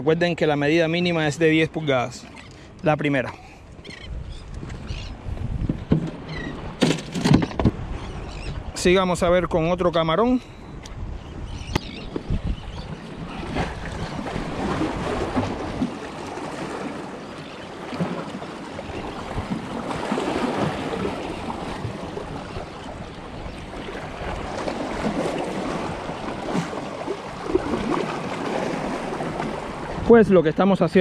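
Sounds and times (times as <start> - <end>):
waves sloshing among rocks: 11.9 - 30.2.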